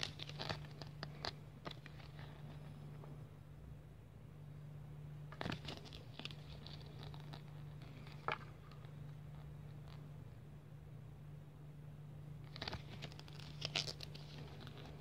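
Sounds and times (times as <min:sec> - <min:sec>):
paper crinkles: 0:00.0 - 0:02.8, 0:05.3 - 0:10.0, 0:12.4 - 0:15.0
paper page rustling: 0:00.0 - 0:02.8, 0:05.3 - 0:08.9, 0:12.4 - 0:15.0
faint low hum: 0:00.0 - 0:15.0.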